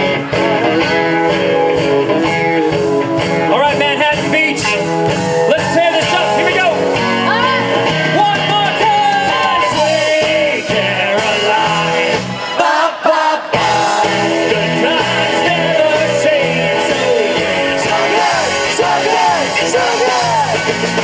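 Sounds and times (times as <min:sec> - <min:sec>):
live rock band playing: 0:00.0 - 0:21.0
man and woman singing: 0:08.4 - 0:21.0.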